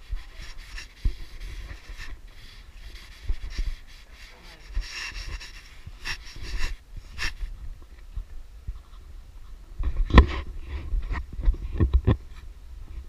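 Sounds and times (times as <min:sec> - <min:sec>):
clothing rustling against microphone: 0:00.0 - 0:13.0.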